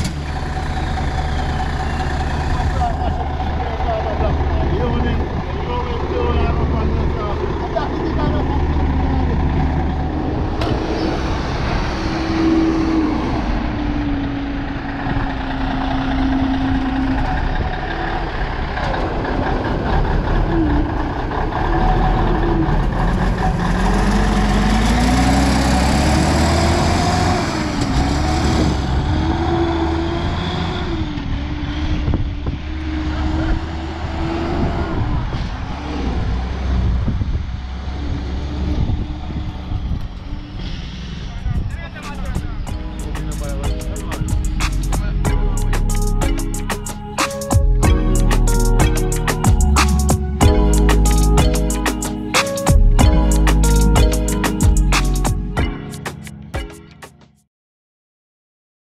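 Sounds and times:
diesel truck engine revving: 0.0 - 46.9.

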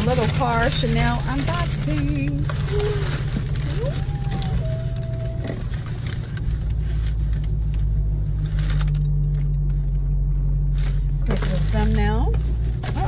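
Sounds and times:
tissue paper rustling: 0.0 - 8.9
car engine hum in cabin: 0.0 - 13.0.

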